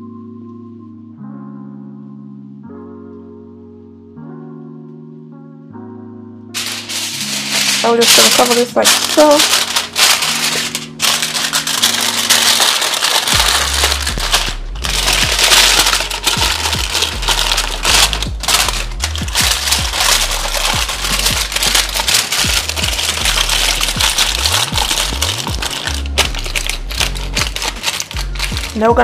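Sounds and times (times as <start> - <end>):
aluminium foil crinkling: 6.6 - 29.0
music with sliding bass line: 13.1 - 29.0.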